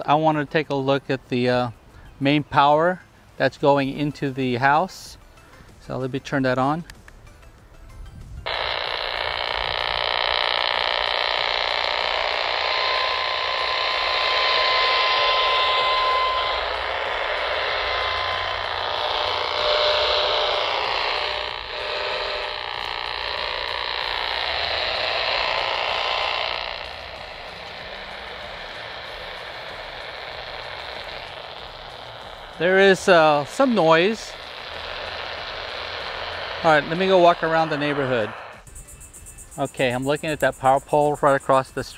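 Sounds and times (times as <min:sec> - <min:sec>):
radio static: 0:08.5 - 0:38.7.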